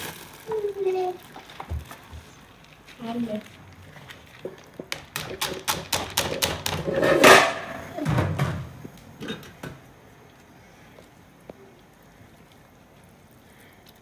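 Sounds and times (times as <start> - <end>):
rice tapping and clicking: 0.0 - 7.4.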